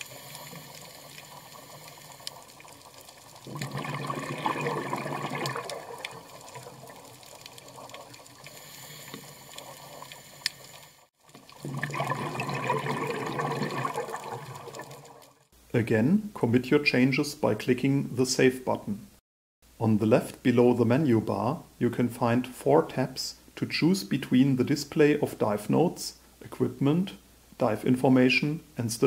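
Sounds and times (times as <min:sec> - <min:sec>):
underwater hiss: 0:00.0 - 0:02.6, 0:07.8 - 0:11.1
rushing bubbles: 0:00.0 - 0:15.5.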